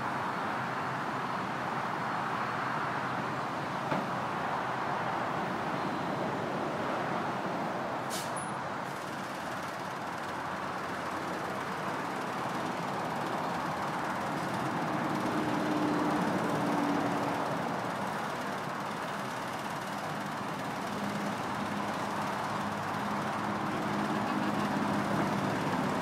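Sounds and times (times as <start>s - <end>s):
crane diesel engines running: 0.0s - 26.0s
short hiss: 8.1s - 9.0s.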